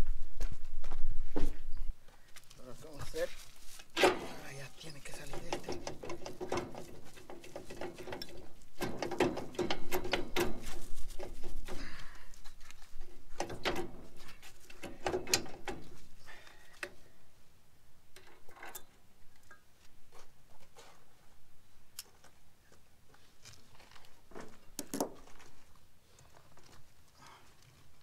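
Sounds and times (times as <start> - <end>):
loose parts rattling: 3.8 - 17.1
metallic clicking and clunking: 4.0 - 11.9, 13.0 - 16.1, 18.1 - 19.6.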